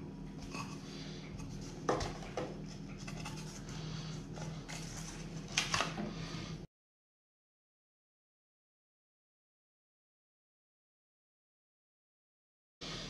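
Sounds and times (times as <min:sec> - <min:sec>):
steady low hum: 0:00.0 - 0:06.7.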